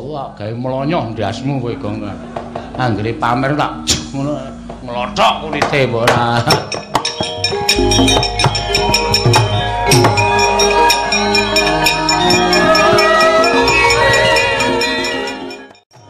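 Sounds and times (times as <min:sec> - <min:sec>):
gamelan metal keys melody: 0:04.5 - 0:15.8
sharp knocks: 0:05.6 - 0:13.0.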